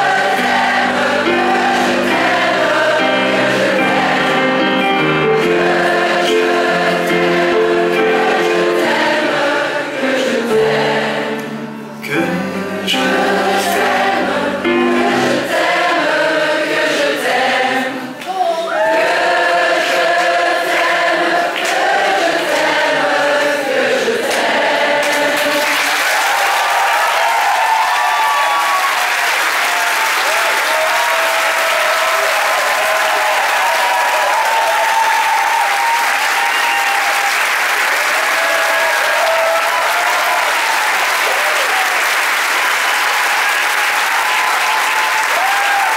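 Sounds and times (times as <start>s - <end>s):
piano song: 0.0s - 18.2s
audience singing along: 0.0s - 26.4s
applause with cheering: 25.4s - 45.9s.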